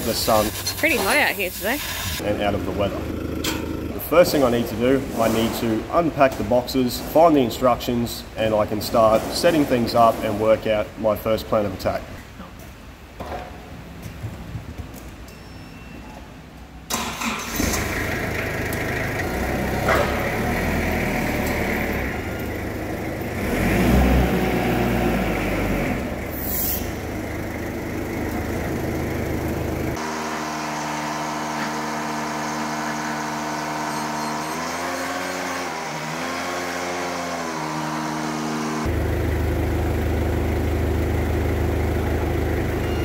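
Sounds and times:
engine humming: 2.2 - 9.2, 16.9 - 35.0, 38.8 - 43.0
forklift engine starting: 16.9 - 43.0.

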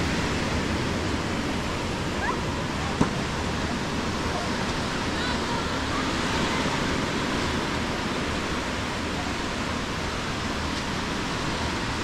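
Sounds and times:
waves washing up a beach: 0.0 - 12.0.

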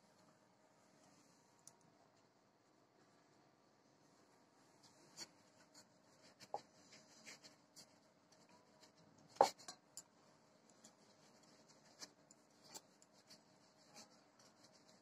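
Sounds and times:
hands rubbing dough: 4.4 - 15.0.

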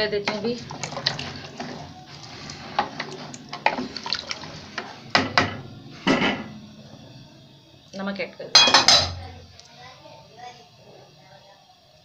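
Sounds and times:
spoon stirring in metal pot: 0.2 - 5.0
liquid sloshing: 0.3 - 5.0.

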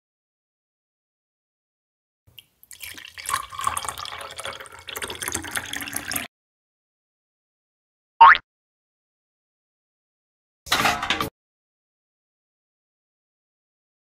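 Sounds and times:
water pouring into tin bucket: 2.3 - 6.3.

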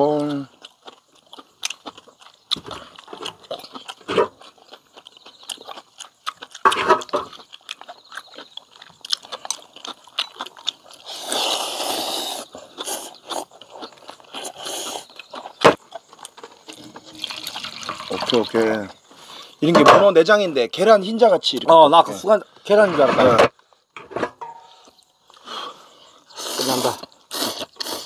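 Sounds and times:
chewing: 0.0 - 19.6, 24.7 - 28.0
noodle slurping: 10.9 - 13.6, 16.5 - 18.8, 26.3 - 28.0.

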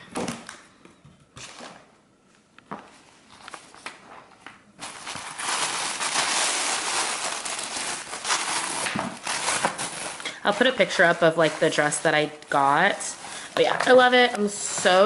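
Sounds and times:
tissue paper crinkling: 4.8 - 15.0.

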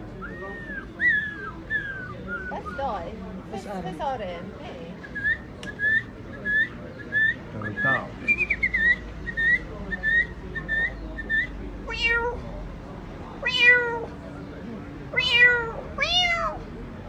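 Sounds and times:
man whistling bird-like chirps: 5.1 - 9.0.

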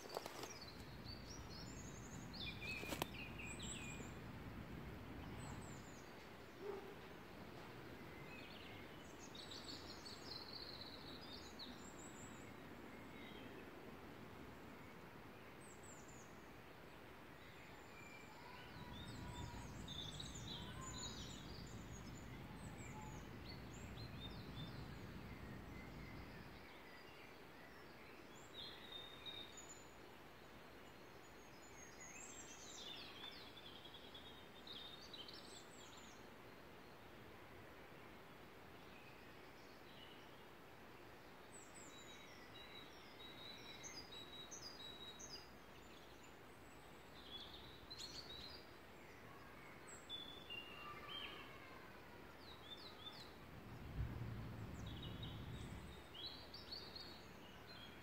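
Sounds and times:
background hiss: 0.0 - 58.0
songbirds singing: 0.0 - 58.0
low rumble: 53.4 - 56.4.

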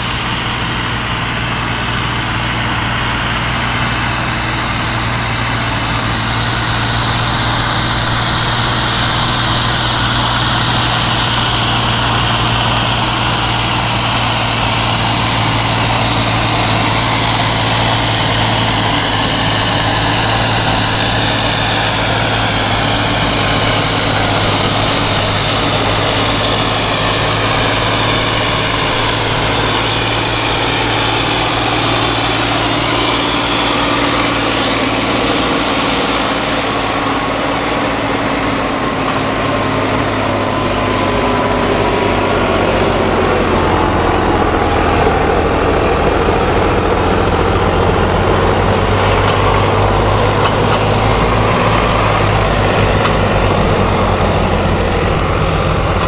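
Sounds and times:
diesel tractor engine under load: 0.0 - 56.0
high turbo whine: 0.0 - 56.0.

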